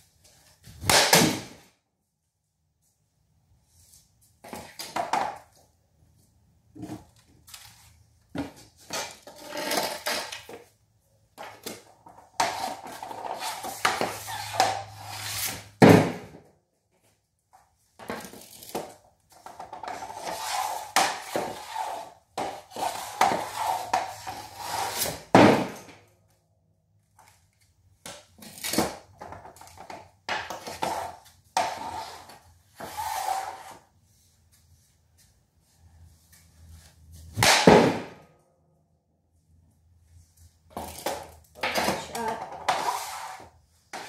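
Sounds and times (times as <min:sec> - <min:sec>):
hockey stick scraping puck: 0:08.4 - 0:10.7, 0:11.4 - 0:16.4, 0:18.0 - 0:26.0, 0:28.2 - 0:34.0, 0:40.7 - 0:44.0.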